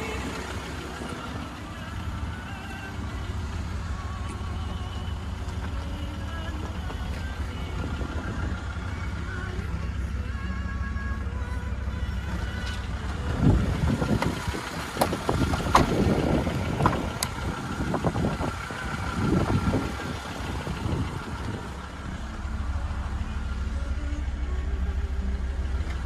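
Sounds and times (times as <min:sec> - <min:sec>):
wind rumble on microphone: 0:05.6 - 0:10.0, 0:12.2 - 0:22.8.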